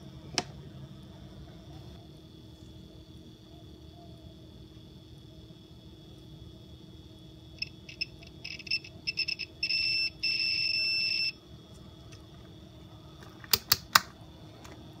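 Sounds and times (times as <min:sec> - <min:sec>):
multimeter continuity beeps: 0:07.6 - 0:11.4
sharp clicks: 0:13.5 - 0:14.1.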